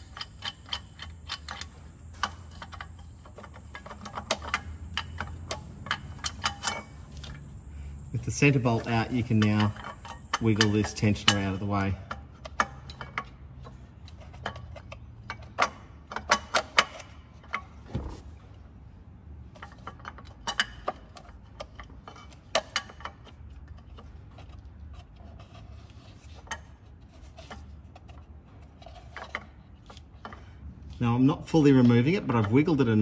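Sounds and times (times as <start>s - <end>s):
steady low hum: 0.0s - 11.6s
metallic clicks and knocks: 0.0s - 17.6s.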